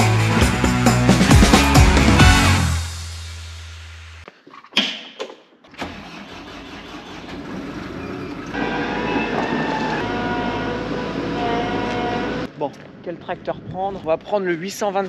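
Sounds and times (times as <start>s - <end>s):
diesel engine starting and running: 5.7s - 12.6s.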